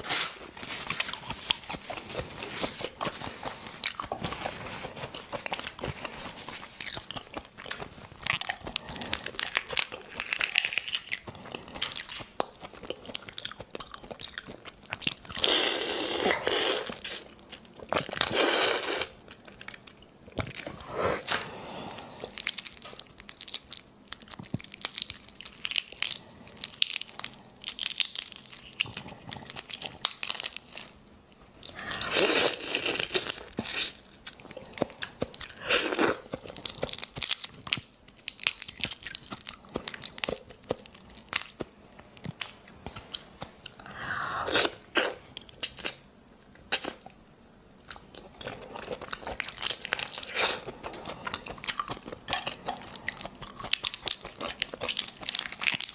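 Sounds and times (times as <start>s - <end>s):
chewing: 0.1s - 31.0s, 47.8s - 55.9s.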